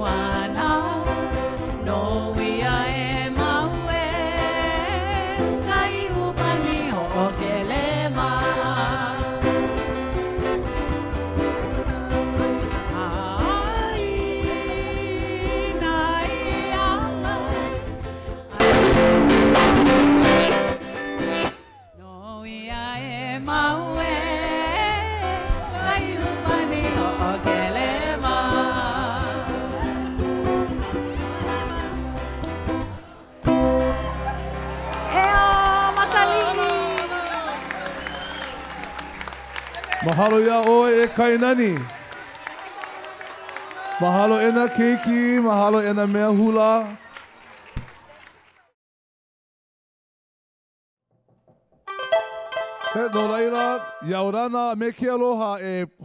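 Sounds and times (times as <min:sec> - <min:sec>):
person singing melody: 0:00.0 - 0:09.8, 0:11.5 - 0:20.6, 0:21.8 - 0:33.4, 0:51.9 - 0:54.8
strummed plucked strings: 0:00.0 - 0:21.8, 0:51.8 - 0:54.4.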